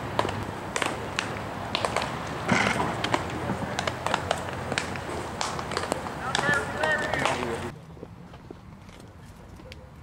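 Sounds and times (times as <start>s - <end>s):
balls smacking into gloves and bats: 0.1s - 7.7s.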